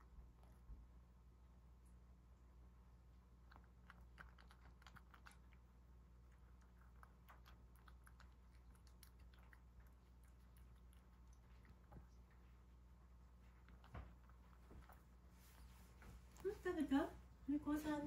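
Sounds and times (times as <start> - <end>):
steady low hum: 0.0 - 18.0
cat chewing clicks: 3.4 - 12.4.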